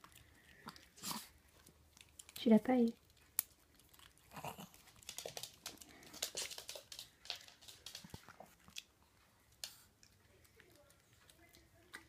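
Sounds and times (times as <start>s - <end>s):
dog biscuit crunching: 0.0s - 9.0s.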